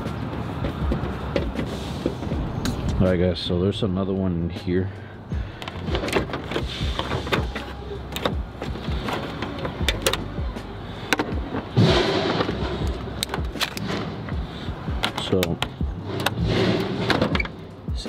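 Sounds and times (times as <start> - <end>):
tool handling clicks and knocks: 0.1 - 3.0, 5.6 - 17.7
steady low hum: 4.9 - 18.0.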